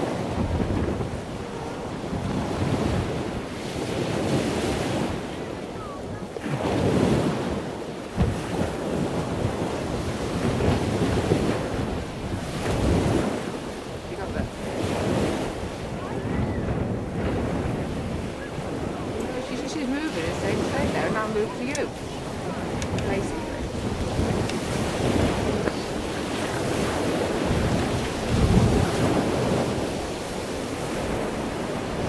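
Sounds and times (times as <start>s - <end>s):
wind buffeting microphone: 0.0s - 32.0s
sharp thump: 8.2s - 8.4s.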